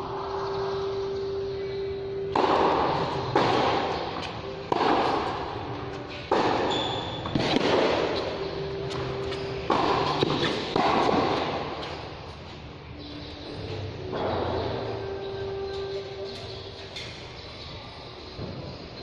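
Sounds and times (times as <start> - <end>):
tennis racket hitting ball: 2.3 - 12.0
tennis balls bouncing: 2.3 - 12.4.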